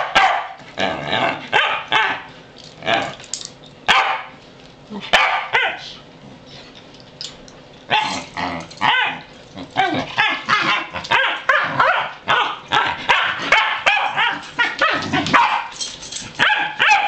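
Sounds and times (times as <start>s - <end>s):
dog barking and yipping: 0.0s - 0.6s, 1.5s - 2.3s, 3.9s - 4.3s, 5.1s - 5.9s, 7.9s - 17.0s.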